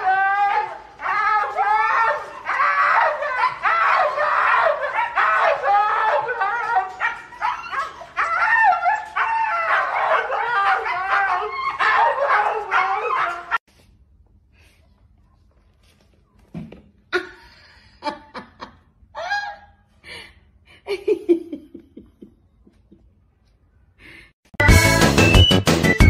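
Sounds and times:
huskies yipping and howling: 0:00.0 - 0:13.6.

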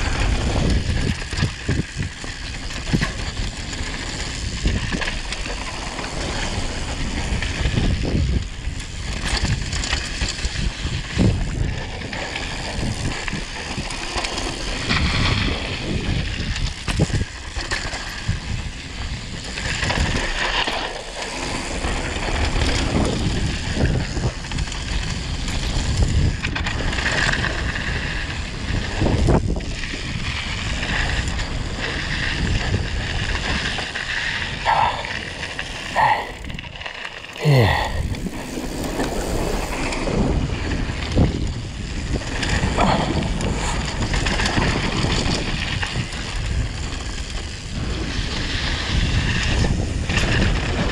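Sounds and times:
wind rushing over microphone: 0:00.0 - 0:03.7, 0:06.1 - 0:09.8, 0:27.8 - 0:50.9
bike knocking and rattling: 0:00.0 - 0:15.0.

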